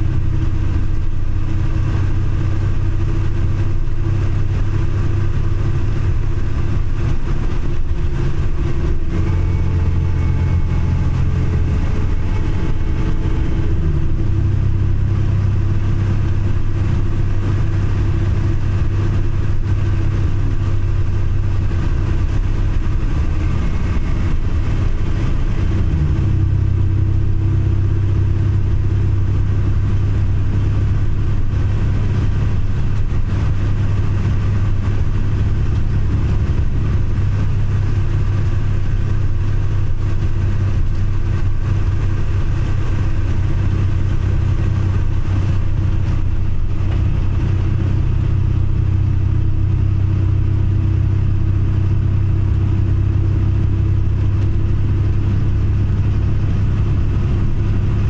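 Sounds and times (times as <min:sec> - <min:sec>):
bus engine and road noise: 0:00.0 - 0:58.0.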